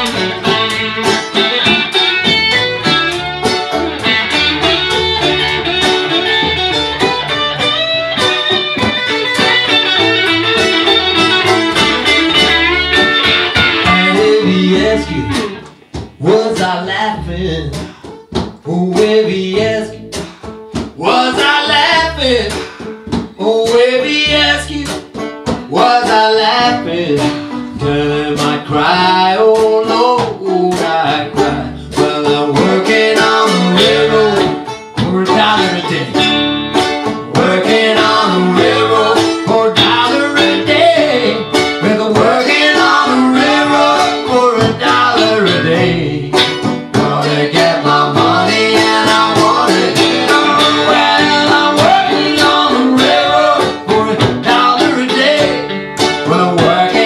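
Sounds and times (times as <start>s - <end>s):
lead line with bending notes: 0.0s - 15.7s
acoustic blues band playing: 0.0s - 57.0s.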